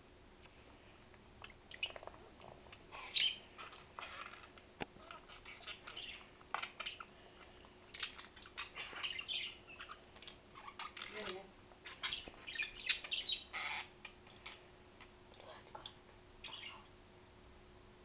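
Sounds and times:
budgerigar chirping and warbling: 2.9s - 7.1s, 7.9s - 14.6s, 16.4s - 16.9s.

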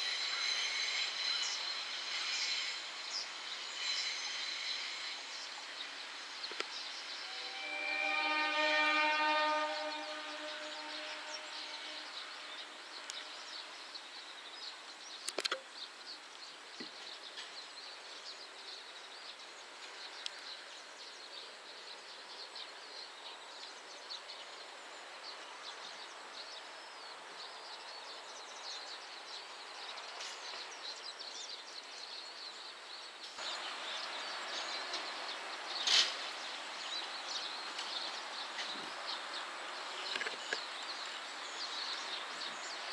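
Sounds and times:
steady hiss: 0.0s - 42.9s
sharp clicks: 15.2s - 15.6s.

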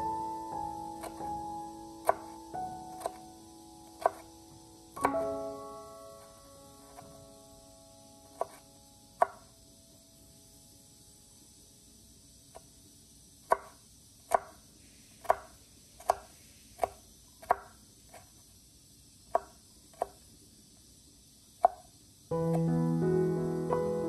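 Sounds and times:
piano music: 0.0s - 10.5s, 22.3s - 24.0s
knife chopping on wooden board: 1.0s - 1.4s, 2.0s - 3.2s, 3.9s - 4.4s, 5.0s - 5.3s, 8.3s - 8.6s, 9.2s - 9.4s, 13.5s - 14.6s, 15.2s - 18.3s, 19.3s - 20.2s, 21.6s - 21.8s.

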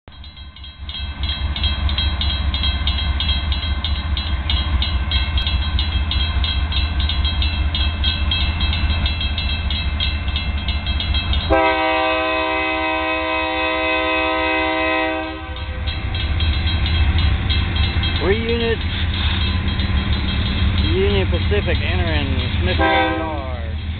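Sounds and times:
diesel locomotive rumbling: 0.1s - 23.9s
locomotive air horn blast: 11.5s - 15.8s, 22.8s - 23.4s
quick regular ticking: 15.9s - 22.8s.

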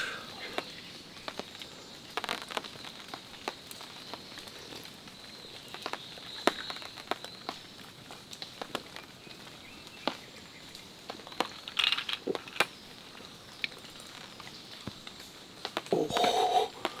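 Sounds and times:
satisfied voiced exhale: 0.0s - 0.5s, 15.9s - 17.0s
breath: 0.0s - 0.6s, 16.1s - 17.0s
man gulping drink: 15.9s - 17.0s.

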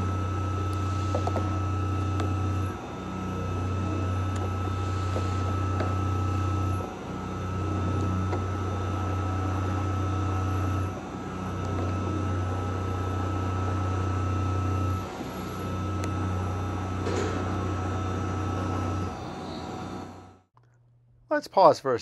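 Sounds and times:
mill spindle hum: 0.0s - 20.5s
steady whine: 0.0s - 20.5s.

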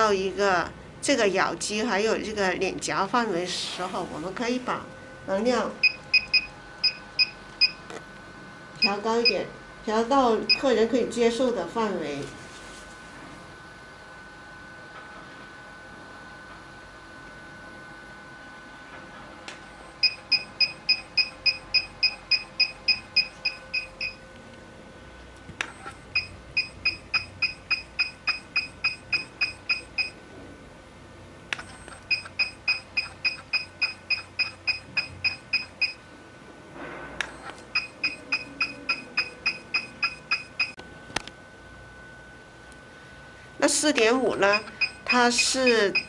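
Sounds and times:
quick high beeps: 37.4s - 40.8s, 44.5s - 46.0s.

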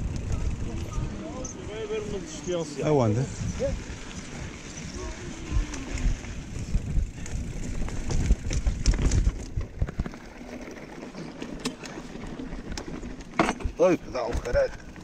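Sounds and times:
wind rumble on microphone: 0.0s - 10.2s
bike rattling over bumps: 0.0s - 15.0s.

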